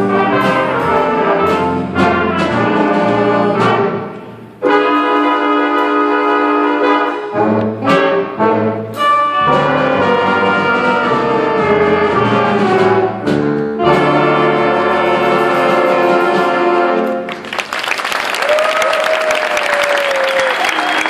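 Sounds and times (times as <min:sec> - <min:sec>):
big band playing jazz: 0:00.0 - 0:17.8
audience applause: 0:17.3 - 0:21.0.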